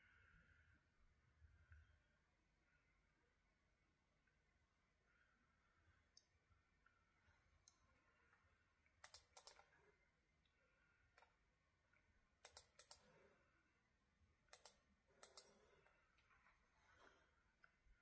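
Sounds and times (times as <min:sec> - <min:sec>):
light clicks: 0:09.0 - 0:09.8, 0:12.4 - 0:13.2, 0:14.5 - 0:16.0.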